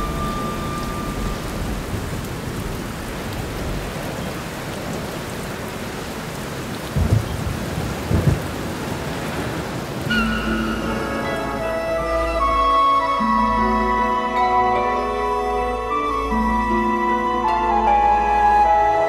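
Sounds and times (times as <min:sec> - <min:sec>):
music with held notes: 0:00.0 - 0:02.0, 0:10.1 - 0:19.0
steady rain: 0:00.0 - 0:19.0
low rumbles of thunder: 0:06.9 - 0:09.6.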